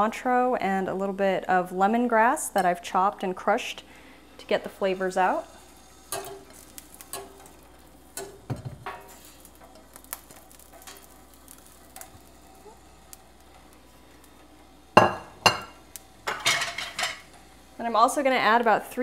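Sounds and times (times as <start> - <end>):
bowl knocking against metal pot: 15.0 - 16.5.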